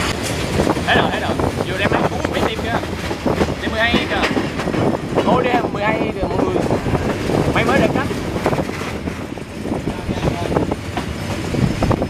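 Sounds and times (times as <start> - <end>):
train rumble: 0.0 - 12.0
wheels knocking on rails: 0.0 - 12.0.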